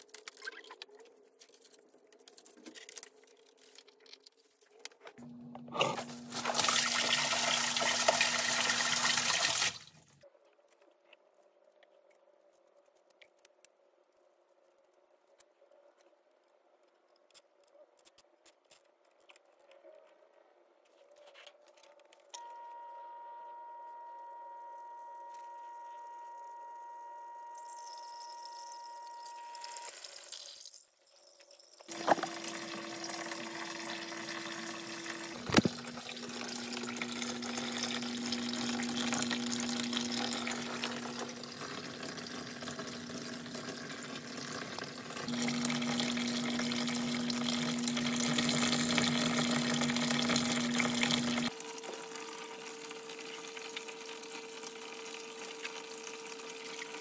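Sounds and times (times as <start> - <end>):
pump humming: 5.2 - 9.9, 31.9 - 57.0
water running and trickling: 6.0 - 10.1, 27.6 - 57.0.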